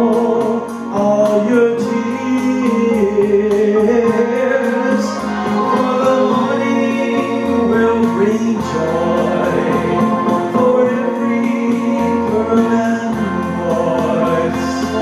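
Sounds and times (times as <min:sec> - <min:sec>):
backing music: 0:00.0 - 0:15.0
man singing into microphone: 0:00.0 - 0:15.0.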